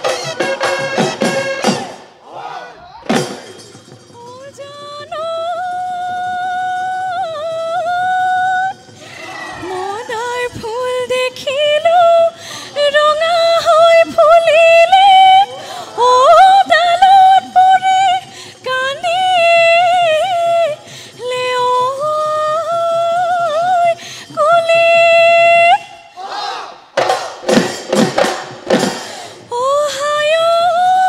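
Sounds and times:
woman singing into a microphone: 4.1s - 26.1s, 29.4s - 31.0s.

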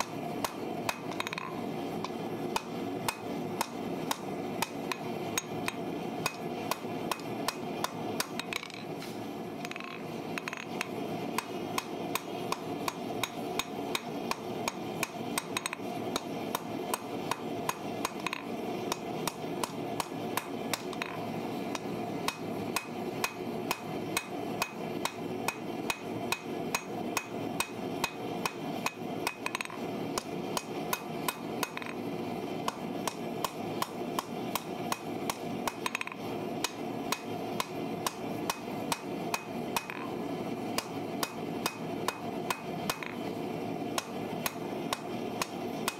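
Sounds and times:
hammer striking metal on anvil: 22.3s - 29.8s, 30.6s - 32.0s, 40.8s - 43.2s.

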